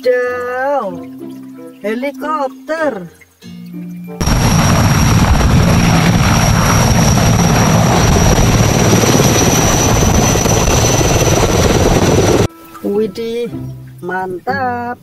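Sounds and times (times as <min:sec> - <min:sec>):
helicopter rotor blades beating: 0:04.2 - 0:12.5
turbine whine: 0:04.2 - 0:12.5.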